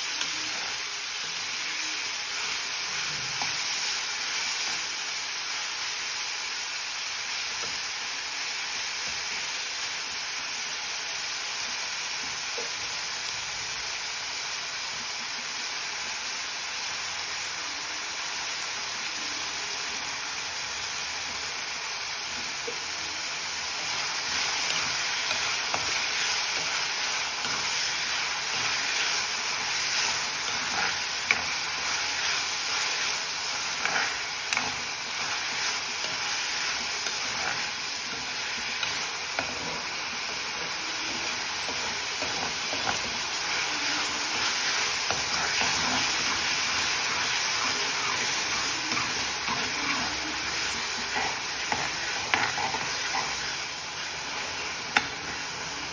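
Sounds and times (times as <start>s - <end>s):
onions and tomatoes sizzling: 0.0s - 55.9s
metal spatula scraping pan: 48.4s - 53.4s.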